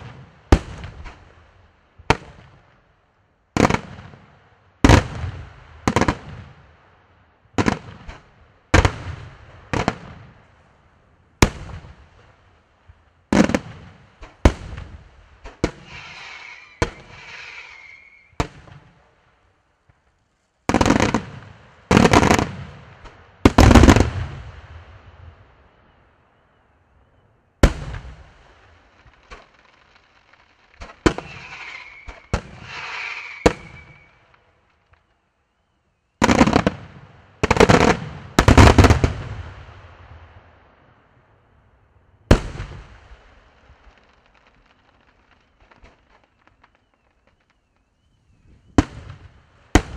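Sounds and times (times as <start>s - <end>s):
hissing crackle: 14.0s - 19.1s, 28.1s - 35.7s, 42.6s - 49.9s
firework shells bursting: 15.4s - 18.7s, 29.0s - 35.1s.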